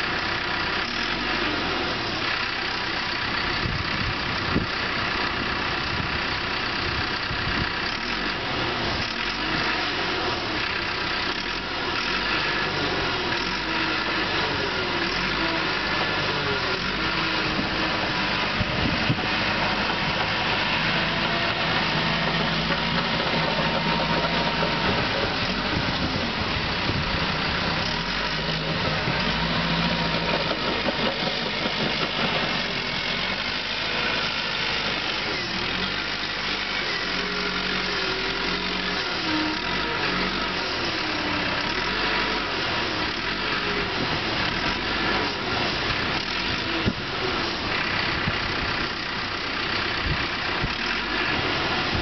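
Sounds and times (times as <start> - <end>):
bulldozer diesel engine running: 0.0 - 52.0.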